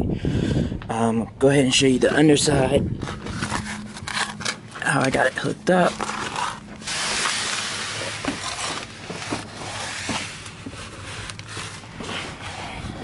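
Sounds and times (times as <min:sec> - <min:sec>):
soft rustling: 0:05.7 - 0:13.0
hissing scrape: 0:06.0 - 0:12.7.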